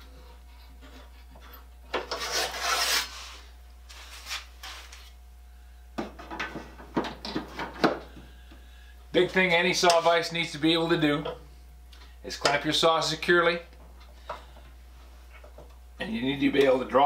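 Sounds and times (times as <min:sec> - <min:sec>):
handsaw drawn from rack: 0:02.0 - 0:05.0.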